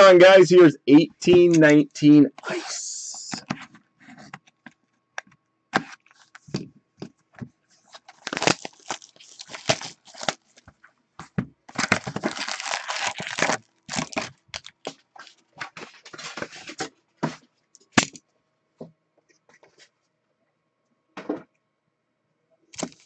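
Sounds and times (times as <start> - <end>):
foil packs handled: 7.8 - 10.7, 11.7 - 16.9, 22.8 - 23.0
plastic wrap crinkling: 7.9 - 10.7, 11.7 - 16.8, 22.8 - 23.0.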